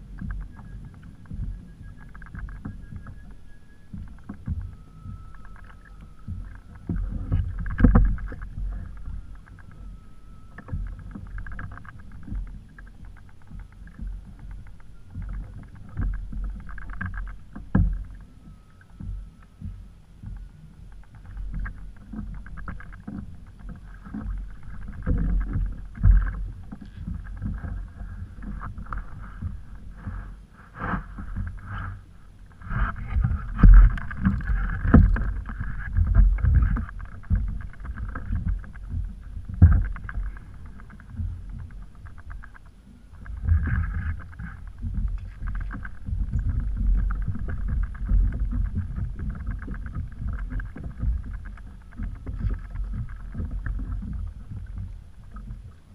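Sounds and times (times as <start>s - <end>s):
water sloshing against kayak hull: 0.0s - 55.9s
sharp knocks on boat: 32.8s - 41.7s.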